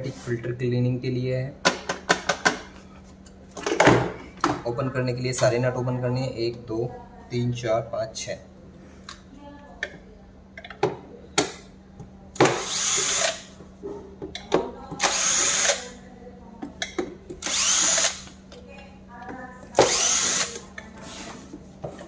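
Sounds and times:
cordless drill whining: 17.4s - 18.3s, 19.8s - 20.6s.

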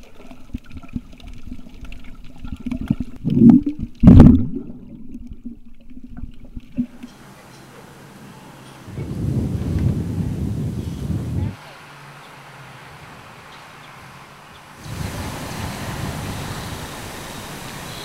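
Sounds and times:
gushes of bubbles: 0.0s - 7.1s, 14.8s - 18.0s
underwater clicks: 0.0s - 7.6s
muffled underwater sloshing: 0.0s - 11.6s
faint steady hiss: 3.5s - 18.0s.

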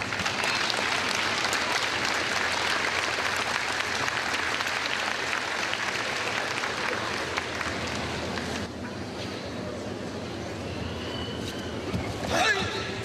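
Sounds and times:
audience applauding: 0.0s - 8.6s.

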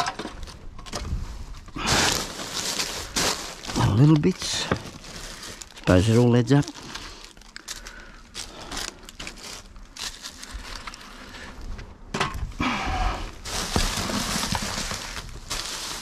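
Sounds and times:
rubbish rustling and knocking: 0.0s - 6.1s, 13.3s - 16.0s.

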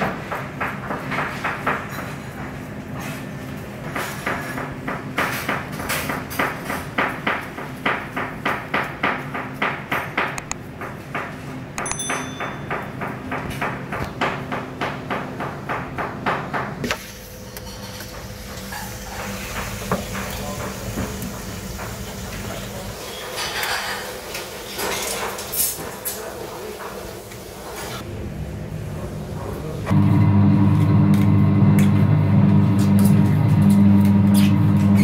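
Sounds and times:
steady hum: 28.0s - 35.0s.

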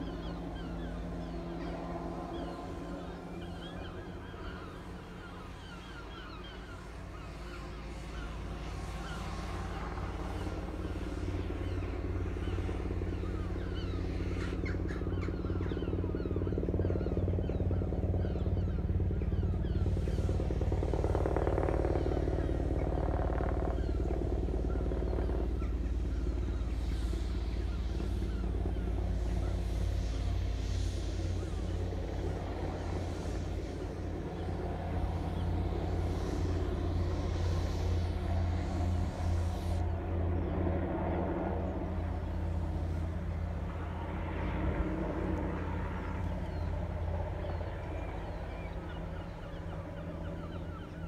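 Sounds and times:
helicopter rotor beating: 0.0s - 51.0s.

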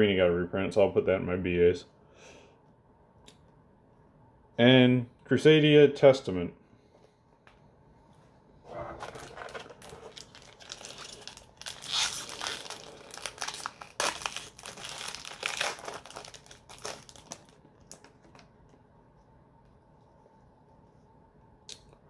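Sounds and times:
foil pack crinkling and tearing: 9.0s - 18.4s.

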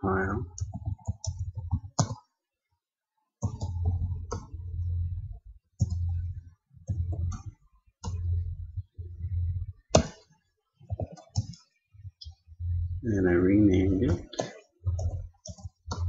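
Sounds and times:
keyboard typing clicks: 0.5s - 2.3s, 3.4s - 4.6s, 5.8s - 6.2s, 6.9s - 8.3s, 14.1s - 16.0s
low rumble: 3.8s - 6.4s, 8.0s - 9.8s, 12.5s - 14.2s.

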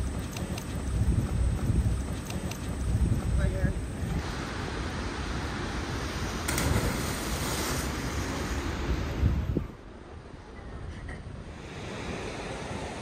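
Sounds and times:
wind buffeting microphone: 0.0s - 9.8s.

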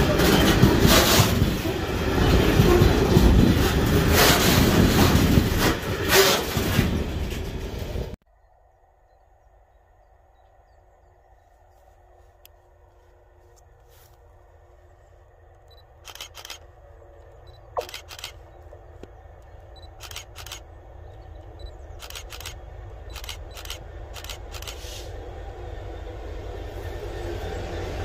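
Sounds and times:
diesel locomotive engine running: 0.0s - 28.0s
sharp clicks: 15.6s - 24.8s.

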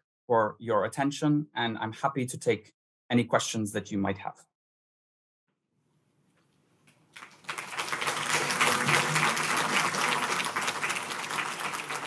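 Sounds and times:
audience applauding: 7.1s - 12.0s.

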